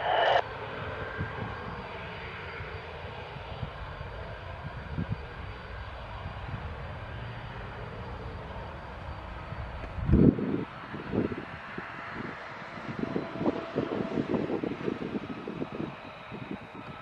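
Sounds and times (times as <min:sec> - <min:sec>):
fighter jet taking off: 0:00.0 - 0:16.9.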